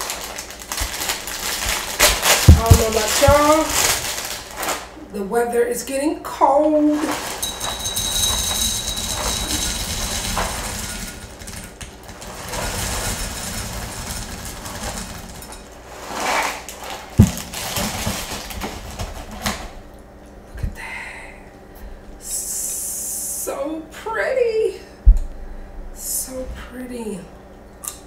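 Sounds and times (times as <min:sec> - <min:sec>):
plastic bag rustling: 0:00.0 - 0:05.0, 0:06.8 - 0:19.6
cereal pouring into glass bowl: 0:07.1 - 0:18.6.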